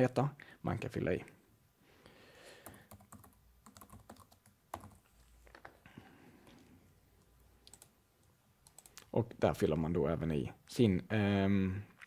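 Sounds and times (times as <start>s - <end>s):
typing on computer keyboard: 2.6s - 5.0s, 7.6s - 7.9s, 8.6s - 9.1s.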